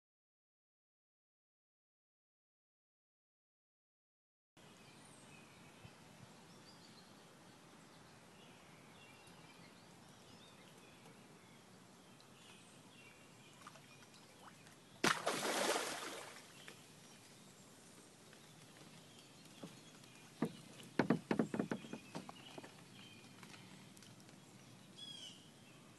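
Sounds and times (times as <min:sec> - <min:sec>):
birds chirping: 0:06.5 - 0:25.9.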